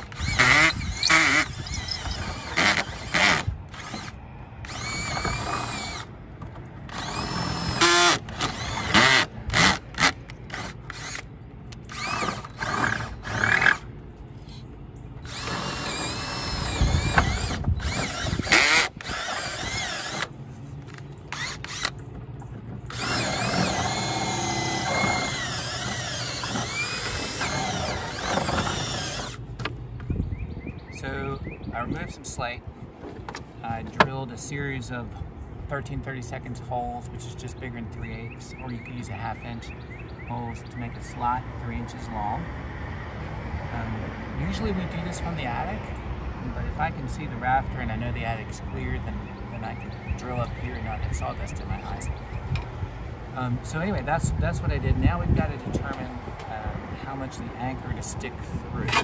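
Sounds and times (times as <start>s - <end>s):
cordless drill boring wood: 0.0s - 6.1s, 6.9s - 11.2s, 11.9s - 13.8s, 15.2s - 20.3s, 21.3s - 21.9s, 22.9s - 29.4s.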